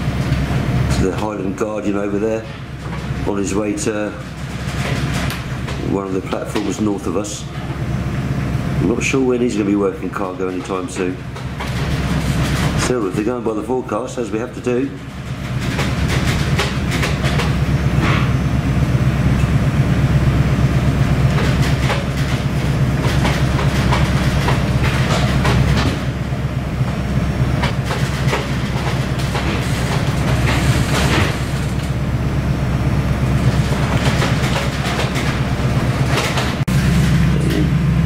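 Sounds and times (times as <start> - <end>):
ship engines droning: 0.0 - 38.0
knocks and rattles: 4.2 - 6.8, 10.6 - 13.0, 15.0 - 18.4, 21.2 - 32.0, 33.3 - 36.7.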